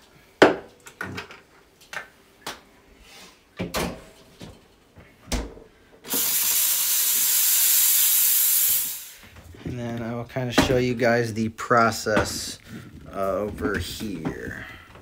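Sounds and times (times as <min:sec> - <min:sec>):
steam wand hissing: 0:06.1 - 0:09.3.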